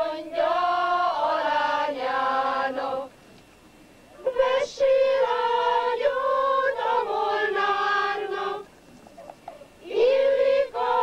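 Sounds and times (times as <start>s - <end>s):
choir singing long notes: 0.0s - 3.1s, 4.2s - 8.7s, 9.8s - 11.0s.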